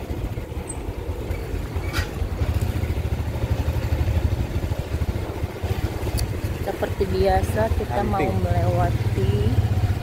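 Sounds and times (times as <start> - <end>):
motorcycle engine rumble: 0.0 - 10.0.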